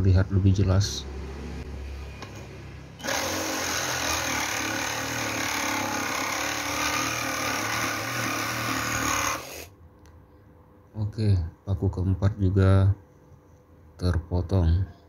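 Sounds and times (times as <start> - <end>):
reciprocating saw cutting metal: 3.0 - 9.7.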